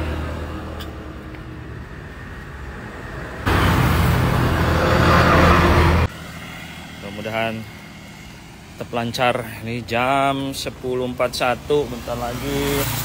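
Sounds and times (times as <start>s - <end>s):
road traffic passing: 0.0s - 13.0s
vehicle passing loudly: 1.6s - 10.3s.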